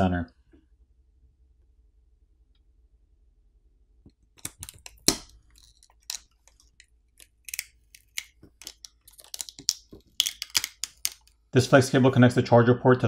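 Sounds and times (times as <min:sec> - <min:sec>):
small clicks and crackles of cables: 0:04.0 - 0:11.4.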